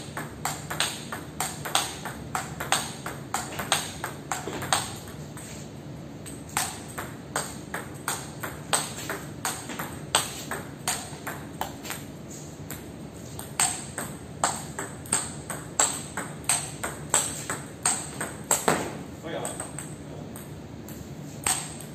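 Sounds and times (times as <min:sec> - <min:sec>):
table tennis ball clicking: 0:00.1 - 0:05.2, 0:13.4 - 0:18.7, 0:19.4 - 0:21.9.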